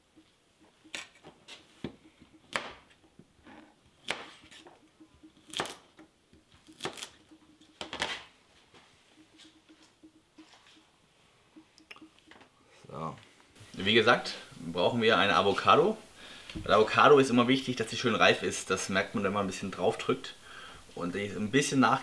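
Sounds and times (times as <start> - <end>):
knife chopping on wooden board: 1.8 - 3.0, 4.0 - 8.2.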